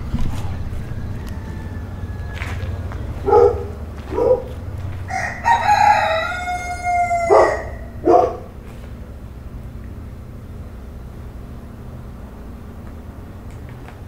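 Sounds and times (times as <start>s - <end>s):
steady low rumble: 0.0s - 14.0s
rooster crowing: 0.1s - 8.6s.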